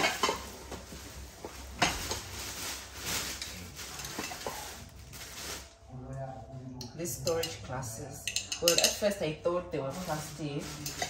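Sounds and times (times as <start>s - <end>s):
plastic bag rustling: 0.0s - 5.9s, 9.8s - 11.0s.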